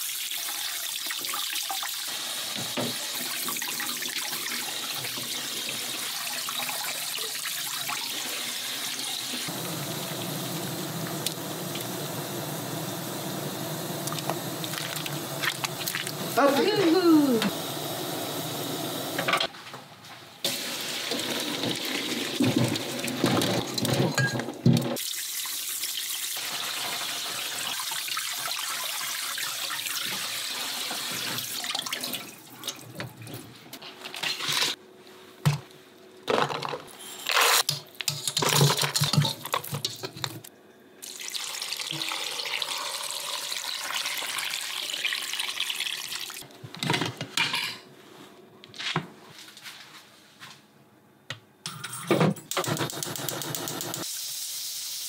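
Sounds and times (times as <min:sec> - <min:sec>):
tap water running into sink: 0:20.5 - 0:24.1.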